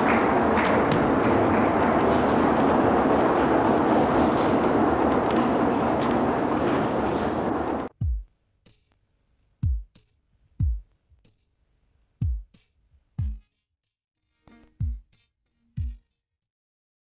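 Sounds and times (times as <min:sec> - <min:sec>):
audience applause: 0:00.0 - 0:07.9
drum machine bass drum hits: 0:08.0 - 0:08.3.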